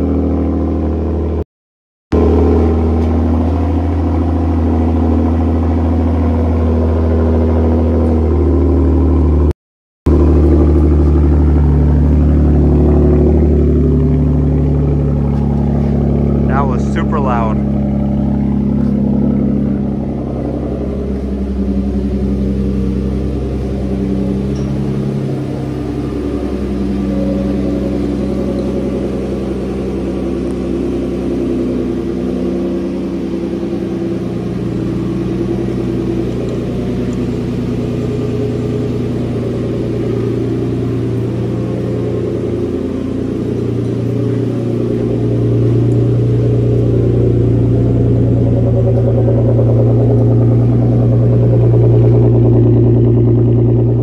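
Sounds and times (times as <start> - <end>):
car engine idling: 0.0 - 1.4, 2.1 - 9.5, 10.1 - 54.0.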